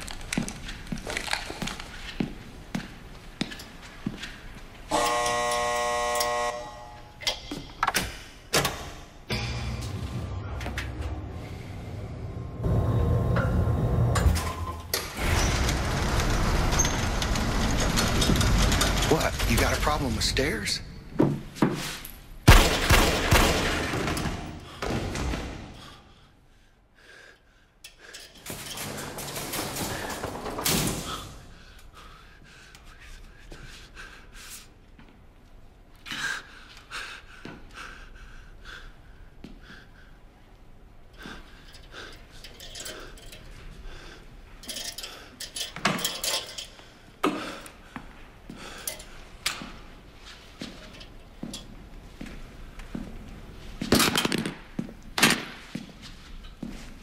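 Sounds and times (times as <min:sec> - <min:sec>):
metal lab equipment clinking: 0:41.6 - 0:43.8, 0:44.6 - 0:46.8.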